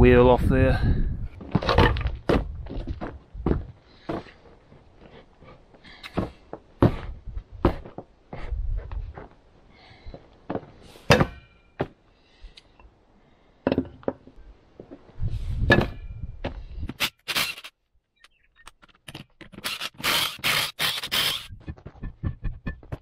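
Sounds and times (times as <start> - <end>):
boot kicking steel bar: 11.0 - 12.0, 15.6 - 16.6.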